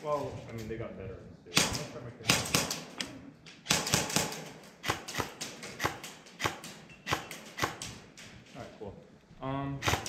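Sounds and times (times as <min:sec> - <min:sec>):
equipment clicking and knocking: 0:01.6 - 0:08.6.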